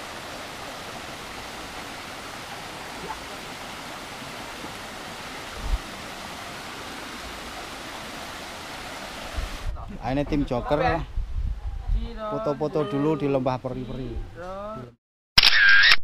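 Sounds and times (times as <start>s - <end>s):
stream flowing over rocks: 0.0s - 9.7s.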